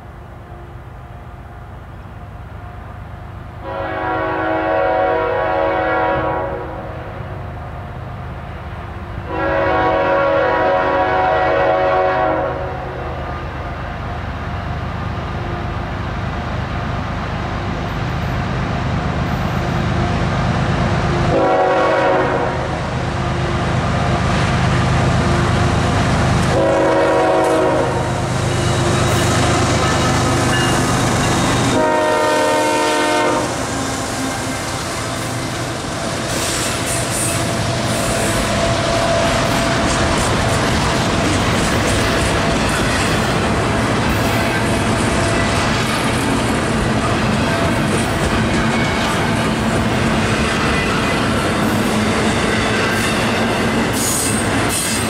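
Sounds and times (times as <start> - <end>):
train wheels passing: 0.0 - 55.0
locomotive air horn blasts: 3.6 - 7.0, 9.2 - 13.2, 21.2 - 22.8, 26.5 - 35.4.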